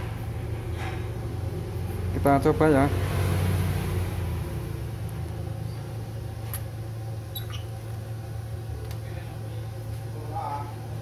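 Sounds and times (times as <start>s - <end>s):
steady low hum: 0.0s - 11.0s
short squeak: 7.3s - 7.8s.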